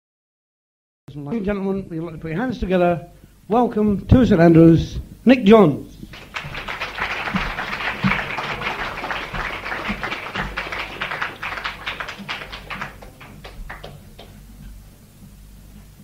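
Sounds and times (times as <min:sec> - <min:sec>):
audience applauding: 0:06.1 - 0:14.4.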